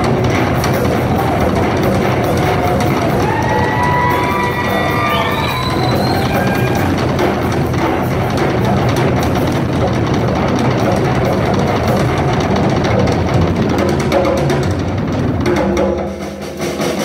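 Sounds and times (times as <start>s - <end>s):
bass drum: 0.0s - 17.0s
rock drum solo: 0.0s - 17.0s.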